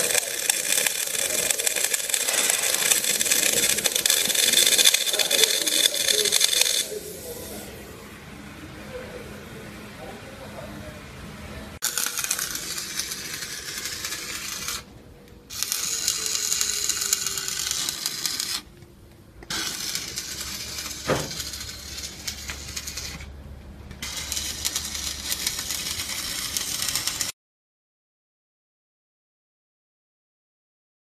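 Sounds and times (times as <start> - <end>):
welding arc crackling and sizzling: 0.0 - 7.6, 11.8 - 14.9, 15.5 - 18.7, 19.4 - 23.4, 24.0 - 27.4.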